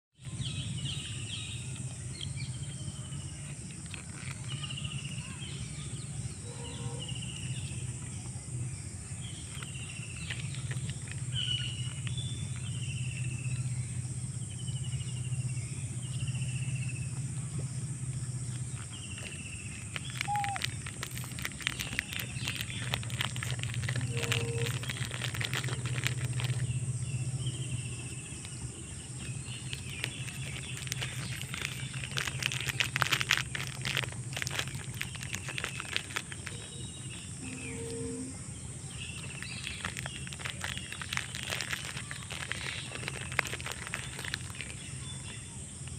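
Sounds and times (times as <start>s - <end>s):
low steady hum: 0.2s - 45.9s
high insect drone: 0.5s - 45.9s
quick clicks and crackles: 1.6s - 5.5s, 9.2s - 13.7s, 16.3s - 37.5s, 39.0s - 45.9s
bird falling call: 20.0s - 20.8s.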